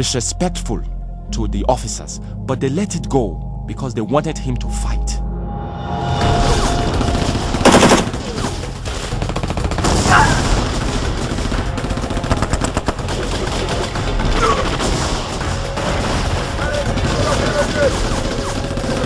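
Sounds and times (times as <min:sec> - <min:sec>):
automatic gunfire: 0:07.5 - 0:19.0.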